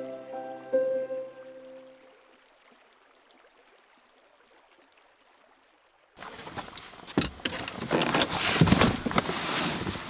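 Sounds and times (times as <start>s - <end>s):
rustling: 6.2s - 10.0s.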